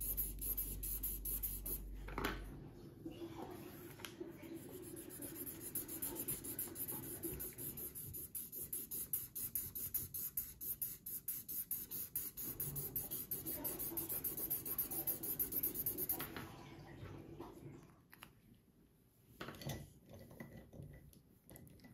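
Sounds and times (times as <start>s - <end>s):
marker scratching on paper: 0.0s - 1.8s, 4.4s - 16.2s.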